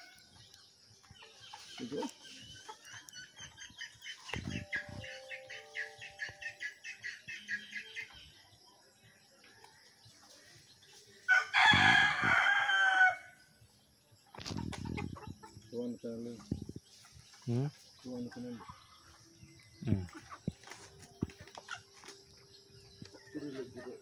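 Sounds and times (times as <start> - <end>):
chickens calling: 0.0 - 24.0
rooster crowing: 11.3 - 13.4.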